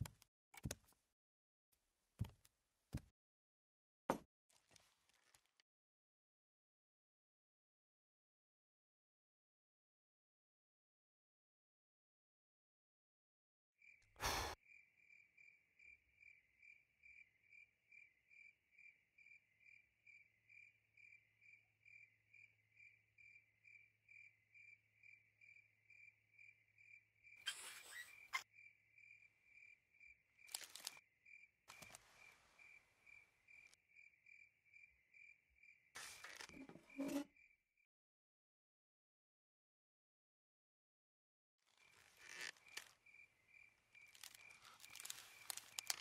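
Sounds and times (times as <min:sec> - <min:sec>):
cricket chirping: 0:14.6 - 0:37.8, 0:41.7 - 0:46.0.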